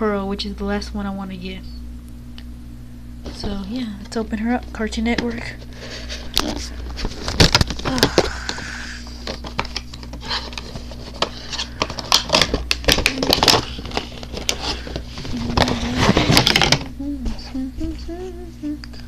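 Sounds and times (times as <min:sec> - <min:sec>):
cardboard box crackling and scraping: 0:13.1 - 0:16.8.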